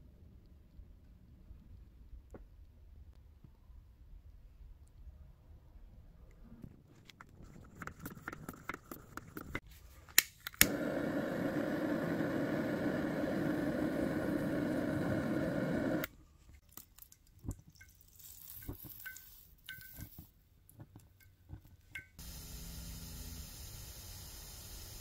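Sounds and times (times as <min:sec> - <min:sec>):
gas torch ignition clicks: 0:10.2 - 0:16.1
gas torch flame hissing: 0:10.6 - 0:16.1, 0:22.2 - 0:25.0.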